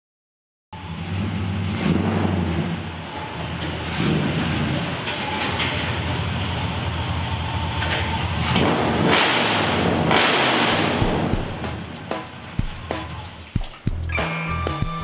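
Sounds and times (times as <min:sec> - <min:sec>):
truck engine low exhaust rumble: 0:00.8 - 0:09.1
rushing noise: 0:08.5 - 0:14.6.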